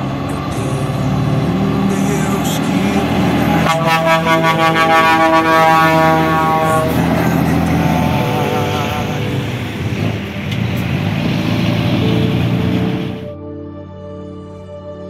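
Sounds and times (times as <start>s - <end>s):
truck engine and tyres rumbling: 0.0s - 13.3s
music: 0.0s - 15.0s
truck air horn blast: 2.0s - 13.3s.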